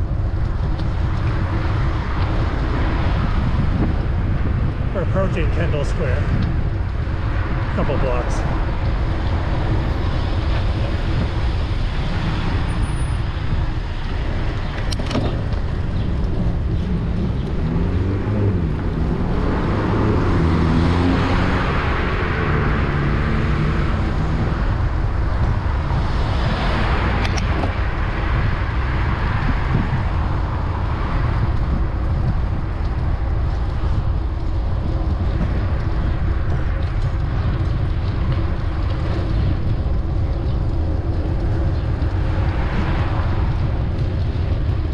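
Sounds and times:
cars passing: 0.0 - 44.9
steady low rumble: 0.0 - 44.9
vehicle engine revving: 16.3 - 25.0.

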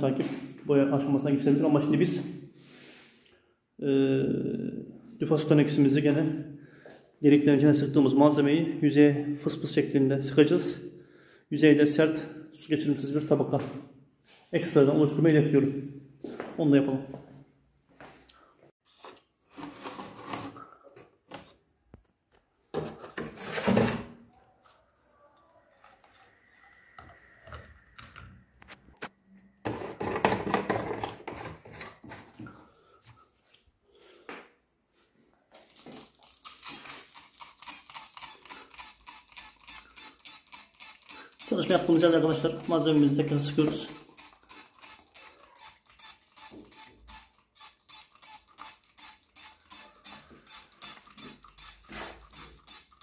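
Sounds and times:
spray bottle squirts: 35.7 - 53.0.

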